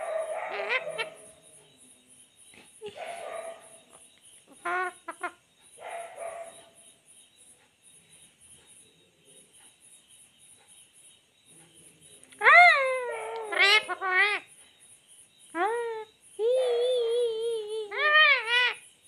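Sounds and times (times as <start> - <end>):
parakeet calling: 0.0 - 1.6, 4.5 - 6.8, 12.4 - 14.6, 17.8 - 18.9.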